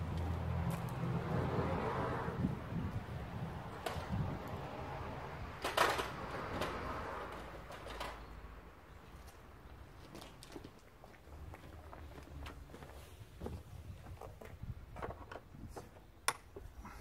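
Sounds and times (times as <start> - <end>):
sharp clicks and knocks: 14.2 - 16.7.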